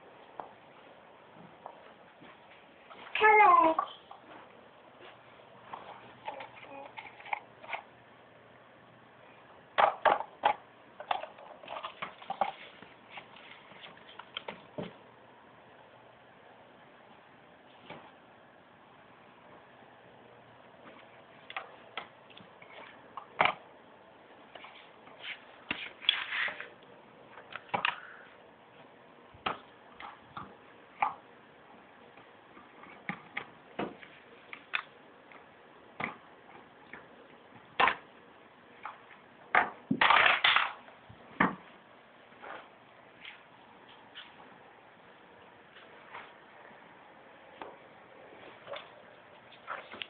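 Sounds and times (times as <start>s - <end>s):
short rustling scrapes: 24.6s - 26.7s.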